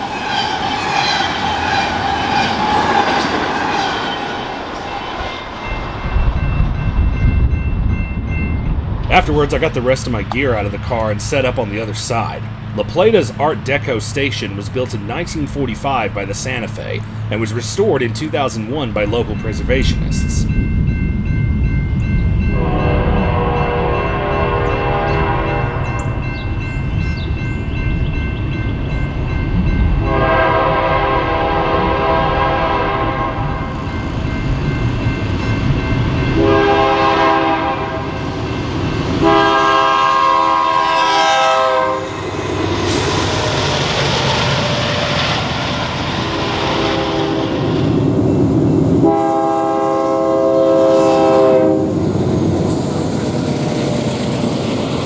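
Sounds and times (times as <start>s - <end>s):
diesel locomotive rumble: 0.0s - 55.0s
train wheels on rails: 0.0s - 55.0s
locomotive air horn blasts: 22.6s - 25.8s, 30.0s - 33.6s, 36.4s - 38.2s, 39.2s - 42.2s, 46.8s - 47.6s, 49.0s - 52.0s.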